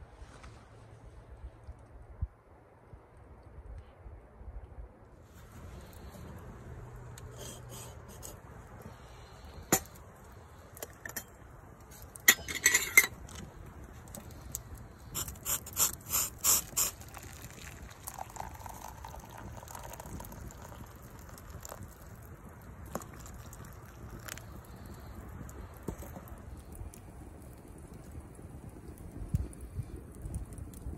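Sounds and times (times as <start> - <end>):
camp cookware clinking: 9.4 - 10.0, 10.7 - 14.5
water poured from a kettle: 14.0 - 25.1.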